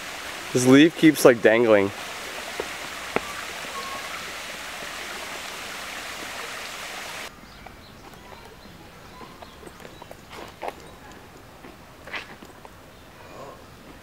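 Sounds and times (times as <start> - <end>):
stream flowing: 0.0 - 7.3.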